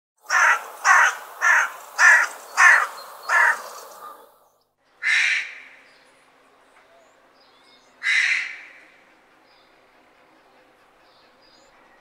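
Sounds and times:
crow cawing: 0.2 - 4.2, 5.0 - 5.8, 8.0 - 8.9.

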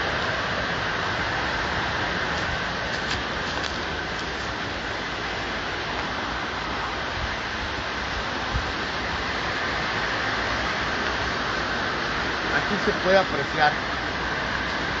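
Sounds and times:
river water flowing: 0.0 - 15.0.

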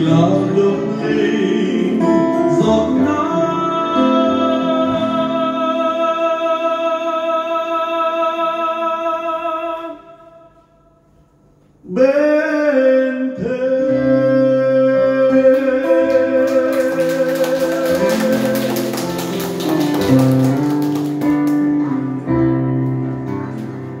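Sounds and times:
acoustic guitar: 0.0 - 6.4, 13.4 - 24.0
digital piano: 14.0 - 24.0.

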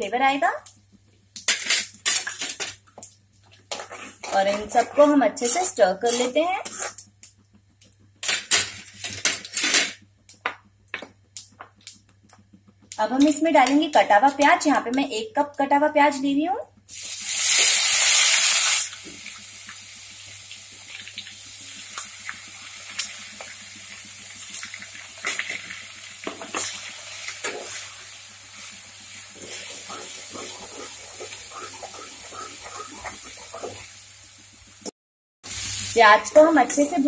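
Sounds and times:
spoon scraping a pan: 3.5 - 7.0, 26.2 - 27.9, 29.4 - 34.0
onions sizzling in hot oil: 16.9 - 34.9, 35.5 - 37.0.

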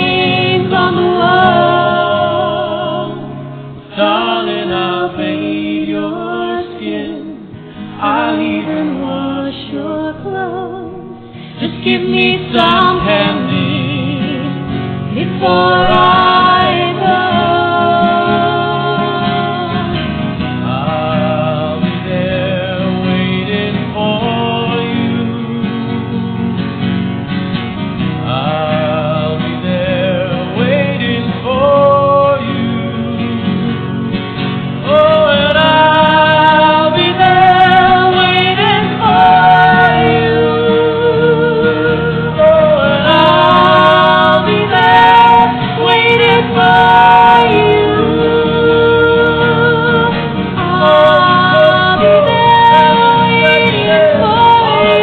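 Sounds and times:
person singing slow song: 0.0 - 26.1, 34.9 - 55.0
guitar accompaniment: 0.0 - 55.0.

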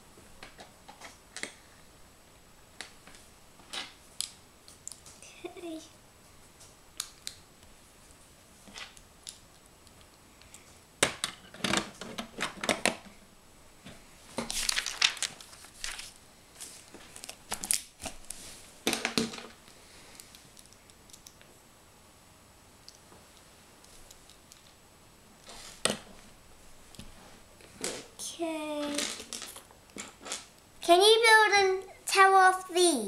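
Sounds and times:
crinkly rustle: 14.3 - 18.7.

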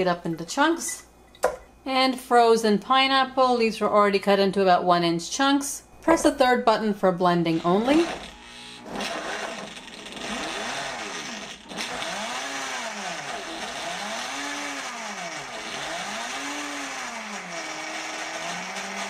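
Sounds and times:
blender motor running: 7.5 - 19.0.

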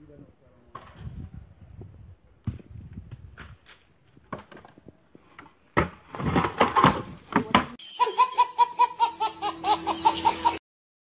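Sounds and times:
baby laughing: 7.8 - 10.6.

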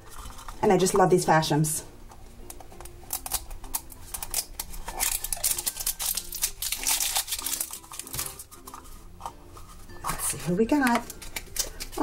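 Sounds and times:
faint background music: 0.0 - 12.0
plastic wrapper crinkling: 2.8 - 12.0.

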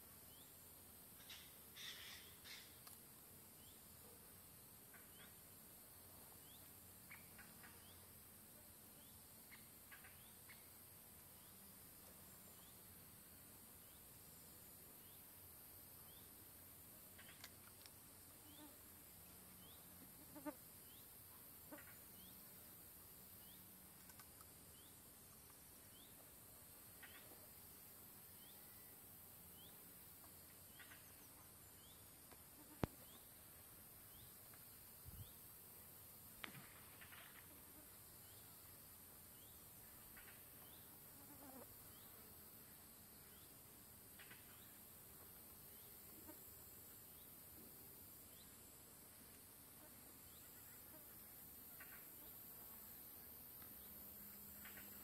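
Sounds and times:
steady high hiss: 0.0 - 55.0
short bird calls: 1.2 - 2.8.

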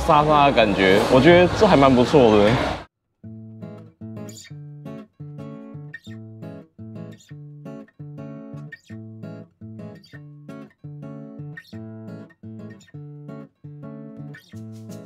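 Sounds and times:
acoustic guitar strumming: 3.2 - 15.0.

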